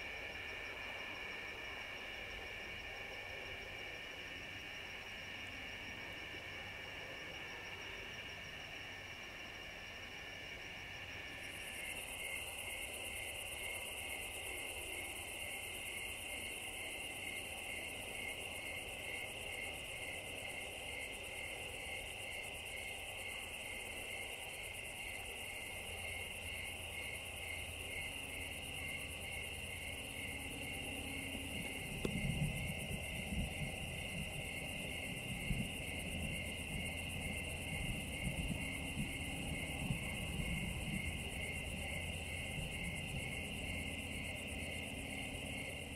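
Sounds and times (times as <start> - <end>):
crickets and night insects chirping: 0.0 - 45.9
low rumble: 29.3 - 45.9.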